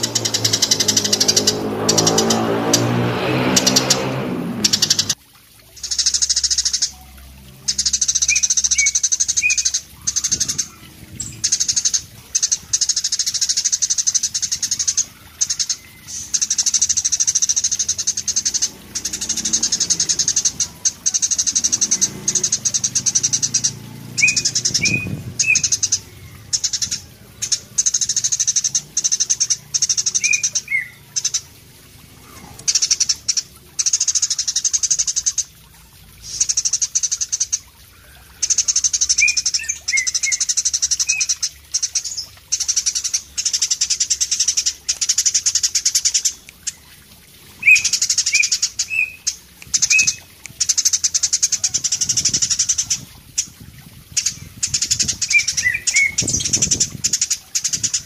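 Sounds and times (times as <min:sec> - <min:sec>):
sparrow chirps: 0:05.8 - 0:35.4, 0:47.6 - 0:58.0
sparrow trilling: 0:07.7 - 0:31.6, 0:47.6 - 0:58.0.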